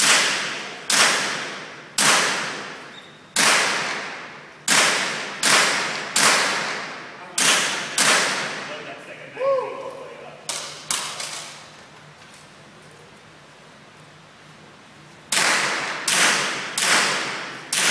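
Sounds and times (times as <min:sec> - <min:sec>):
rifle shots echoing indoors: 0:00.0 - 0:08.8, 0:15.3 - 0:17.9.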